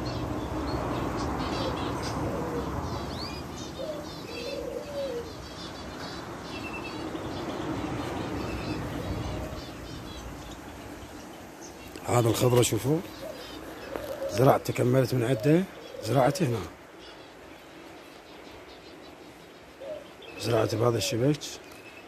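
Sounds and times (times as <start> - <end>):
small birds chirping: 0.0 - 22.0
dove cooing: 1.4 - 5.9, 8.0 - 10.2, 12.1 - 16.8, 19.7 - 21.4.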